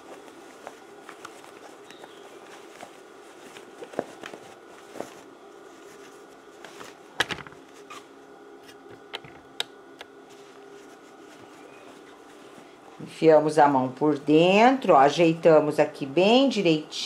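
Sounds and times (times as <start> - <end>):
fabric rubbing: 0.0 - 8.9, 10.2 - 13.8
faint steady hum: 0.0 - 17.0.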